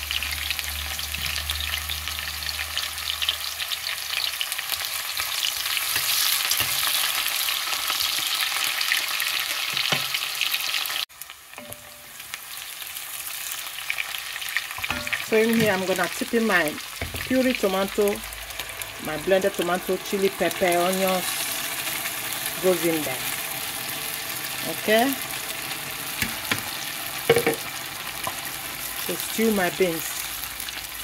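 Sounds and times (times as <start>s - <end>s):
onions sizzling in oil: 0.0s - 31.0s.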